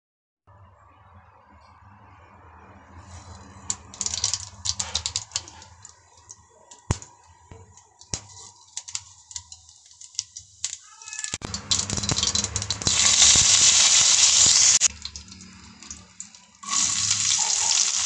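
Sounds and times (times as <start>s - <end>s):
mustard seeds popping in hot oil: 3.6s - 18.0s.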